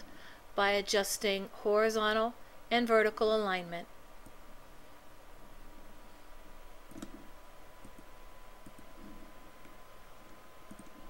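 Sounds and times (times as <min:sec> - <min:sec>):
electrical tone and hiss: 0:00.0 - 0:11.0
computer mouse clicks: 0:06.9 - 0:11.0.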